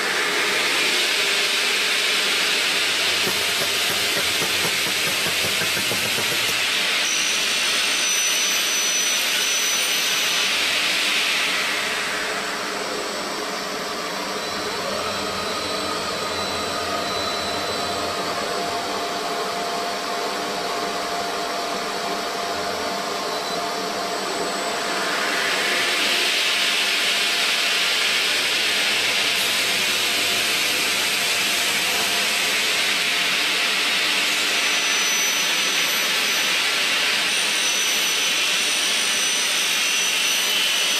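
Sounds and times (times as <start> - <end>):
saw blade whine: 0.0 - 40.9
circular saw cutting slab: 1.8 - 11.9, 24.4 - 40.9.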